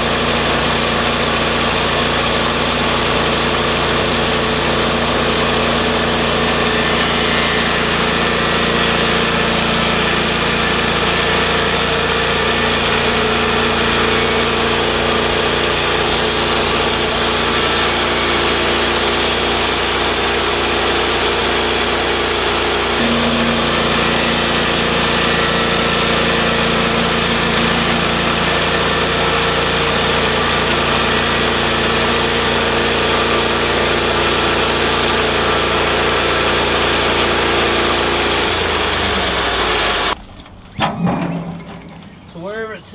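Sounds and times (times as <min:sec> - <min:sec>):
band blade sawing log: 0:00.0 - 0:40.2
sawmill engine under load: 0:00.0 - 0:42.9.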